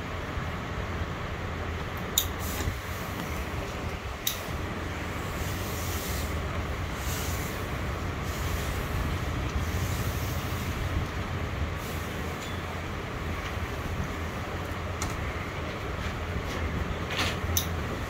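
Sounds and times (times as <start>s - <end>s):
steam iron hissing: 5.2s - 9.0s.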